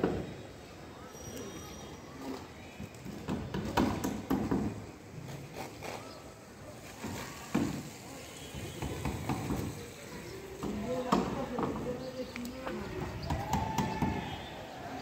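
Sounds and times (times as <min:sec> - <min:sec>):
people's voices: 0:06.0 - 0:15.0.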